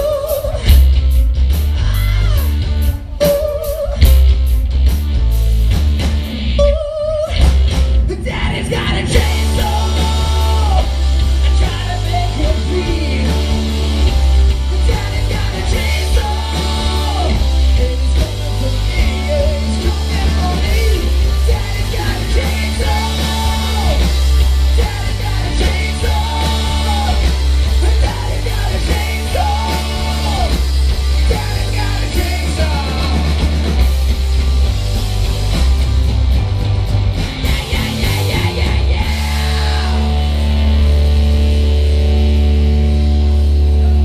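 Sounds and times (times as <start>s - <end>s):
bass guitar: 0.0s - 44.0s
drums: 0.0s - 44.0s
electric guitars: 0.0s - 44.0s
person shouting and singing: 1.7s - 4.1s, 8.0s - 33.6s, 37.4s - 40.6s.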